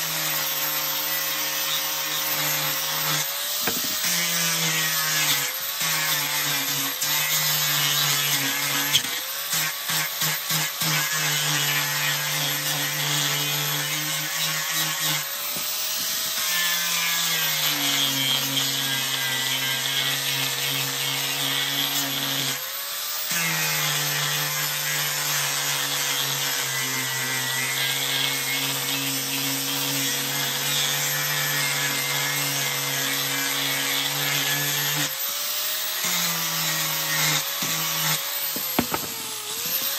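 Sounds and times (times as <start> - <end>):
angle grinder motor whine: 1.0 - 5.8, 34.0 - 39.9
sanding disc rubbing wood: 1.0 - 19.6, 35.8 - 39.9.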